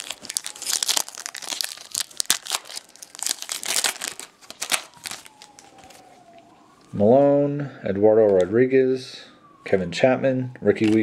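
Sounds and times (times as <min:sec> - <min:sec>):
foil wrapper crinkling and tearing: 0:00.0 - 0:06.1.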